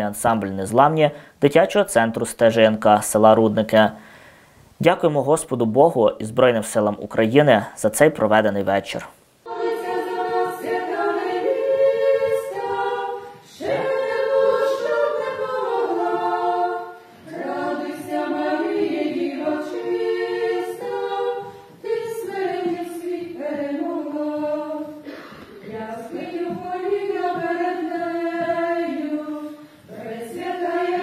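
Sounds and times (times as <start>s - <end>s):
women singing in harmony: 9.4s - 31.0s.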